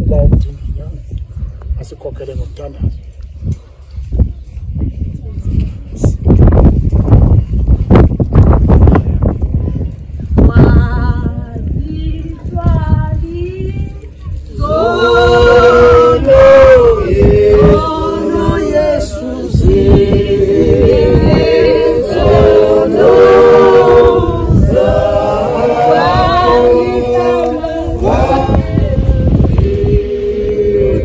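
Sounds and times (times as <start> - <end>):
group singing unaccompanied: 10.5 - 13.6, 14.5 - 31.0.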